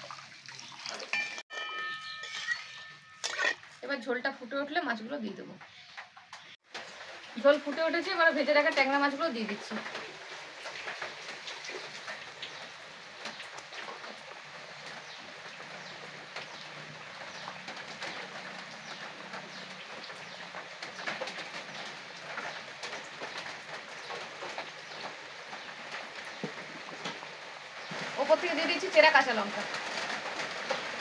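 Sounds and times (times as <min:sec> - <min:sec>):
gravy bubbling and crackling: 0:06.5 - 0:31.0
heavy rain hissing: 0:06.8 - 0:31.0.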